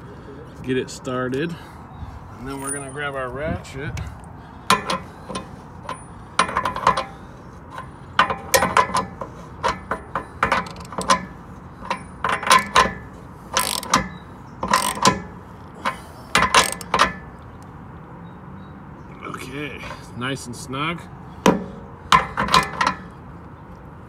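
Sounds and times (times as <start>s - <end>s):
ratchet clicking: 4.7s - 17.3s.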